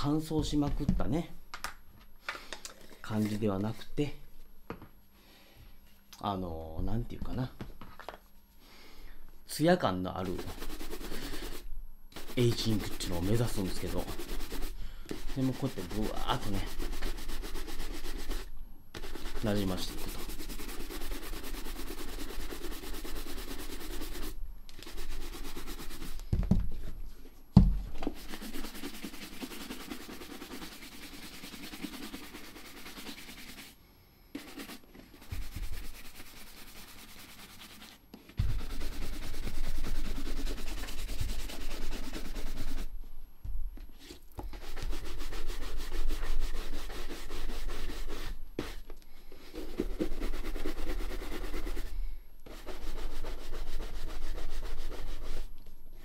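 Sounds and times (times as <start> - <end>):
bristle brush scrubbing leather: 10.2 - 11.6, 12.2 - 26.2, 28.1 - 33.8, 34.4 - 42.9, 44.0 - 48.8, 49.6 - 51.9, 52.5 - 55.5
dull thumps: 27.5 - 28.0.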